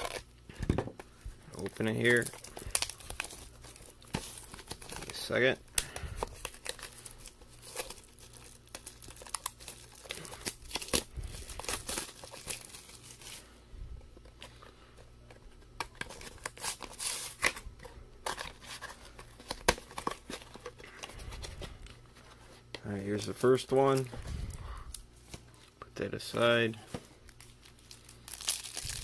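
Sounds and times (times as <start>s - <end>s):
plastic wrapping crinkling and tearing: 0.0s - 13.4s, 15.3s - 22.0s, 26.9s - 29.0s.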